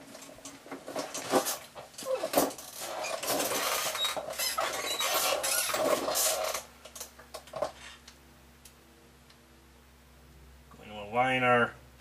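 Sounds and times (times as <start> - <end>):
rustling and scraping handling noise: 0.0 - 8.1.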